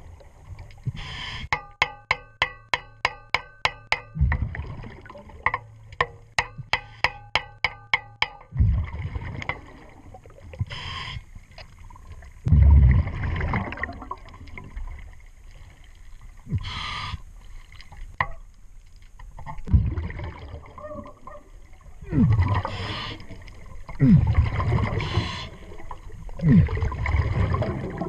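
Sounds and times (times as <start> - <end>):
low rumbling water noise: 0.0 - 28.0
underwater metal hammering: 1.5 - 4.6, 5.4 - 8.6, 18.2 - 18.4
diver exhaling bubbles: 22.0 - 25.6, 26.3 - 28.0.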